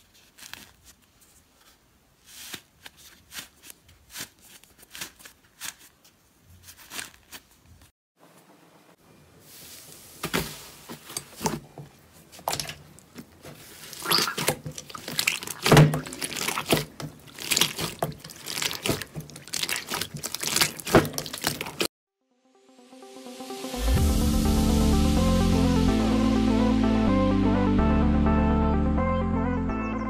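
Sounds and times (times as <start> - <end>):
slime squelching: 11.4 - 21.9.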